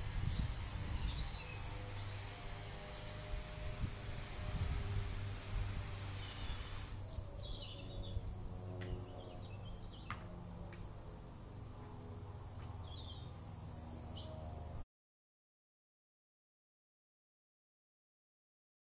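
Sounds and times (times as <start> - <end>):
birds chirping: 0.0 - 4.7, 5.4 - 10.2
fire extinguisher hissing: 0.0 - 7.1.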